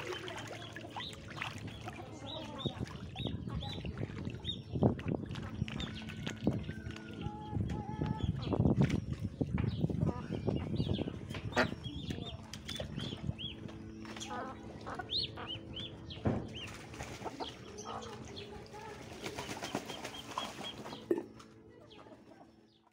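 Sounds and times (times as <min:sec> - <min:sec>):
ducklings and chicks peeping: 0:00.0 - 0:22.9
hens clucking: 0:13.0 - 0:22.9.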